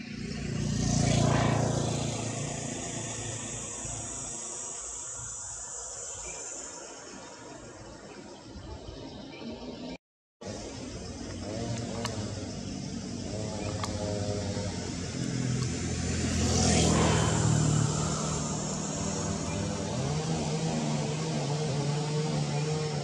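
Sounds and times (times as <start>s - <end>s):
vehicle engine passing by: 0.0s - 5.4s, 10.5s - 23.0s.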